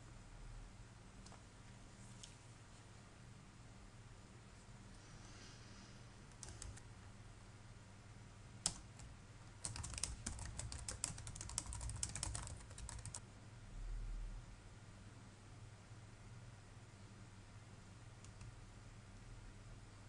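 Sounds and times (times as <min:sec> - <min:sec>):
typing on computer keyboard: 0:06.3 - 0:06.8, 0:08.6 - 0:13.2, 0:18.2 - 0:18.6.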